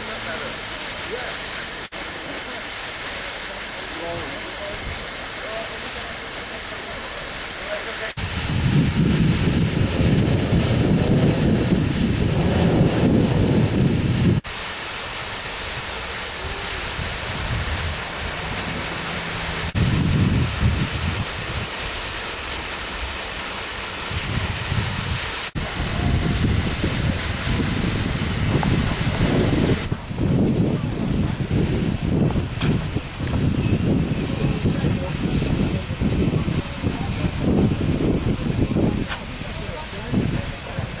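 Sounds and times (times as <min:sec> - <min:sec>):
steam hissing: 0:00.0 - 0:41.0
wind buffeting microphone: 0:08.2 - 0:14.5, 0:16.8 - 0:22.0, 0:24.1 - 0:41.0.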